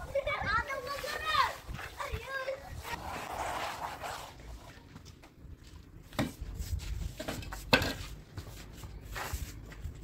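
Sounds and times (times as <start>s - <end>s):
plastering tool scraping wall: 0.8s - 4.7s.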